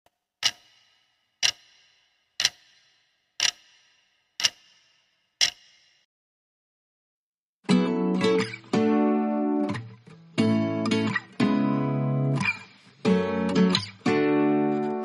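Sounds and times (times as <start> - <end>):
sharp ringing ticks: 0.4 - 6.1.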